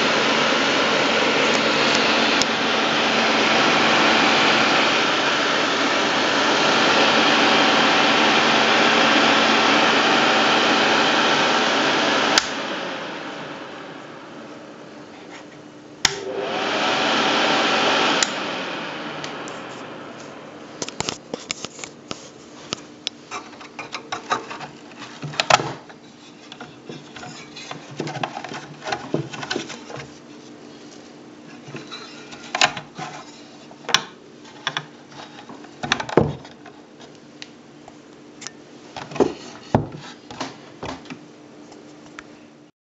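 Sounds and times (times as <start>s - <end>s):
extractor fan spinning: 0.0s - 15.2s, 16.0s - 41.8s
fan switch click: 16.0s - 16.3s.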